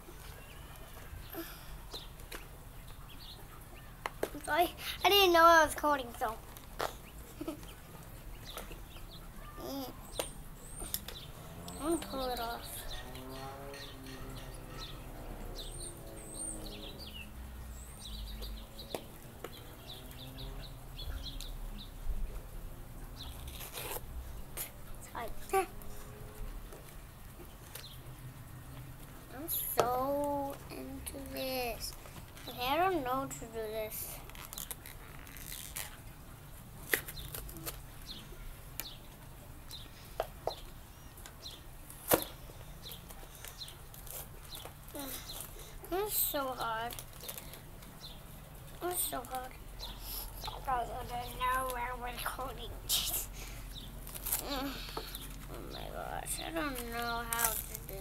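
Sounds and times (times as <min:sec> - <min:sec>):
small birds chirping: 0:00.0 - 0:58.0
plastic packaging crinkling: 0:34.1 - 0:36.1, 0:46.9 - 0:47.9, 0:56.6 - 0:58.0.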